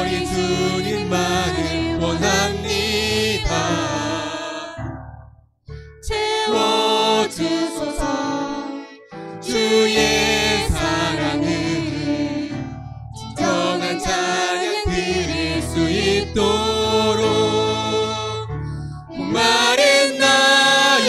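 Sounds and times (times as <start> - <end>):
man and woman singing: 0.0 - 4.8, 6.1 - 12.6, 13.2 - 18.4, 19.2 - 21.0
violin: 0.0 - 4.8
keyboard: 0.0 - 21.0.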